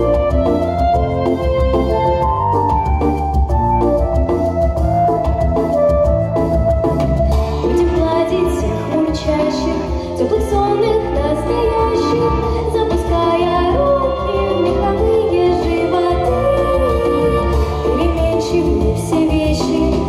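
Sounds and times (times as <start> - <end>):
backing track with bass beat: 0.0 - 20.0
girl singing into microphone: 7.6 - 20.0.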